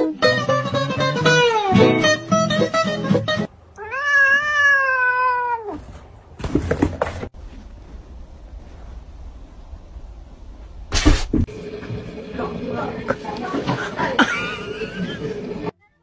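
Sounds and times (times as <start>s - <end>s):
music: 0.0s - 3.5s
cat meowing: 3.7s - 6.0s
cats scuffling: 3.9s - 7.6s.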